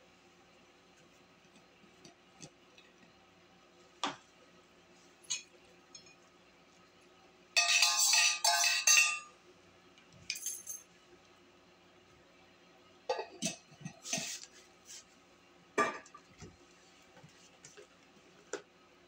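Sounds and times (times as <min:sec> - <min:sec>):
metal spoon clinking on cup: 0:07.6 - 0:09.3.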